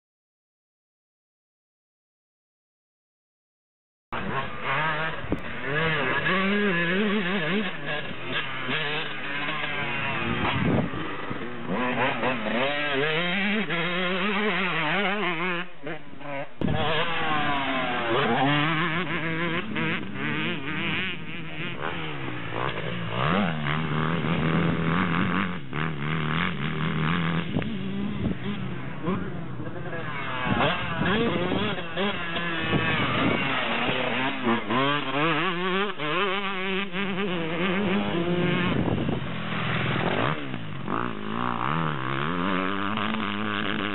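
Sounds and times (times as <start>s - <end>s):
dirt bike engine revving: 4.2s - 43.9s.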